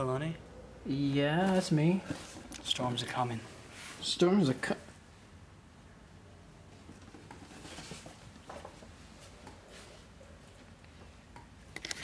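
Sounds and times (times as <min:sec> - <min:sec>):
faint rustling and scratching: 0:01.3 - 0:04.7, 0:06.7 - 0:11.2.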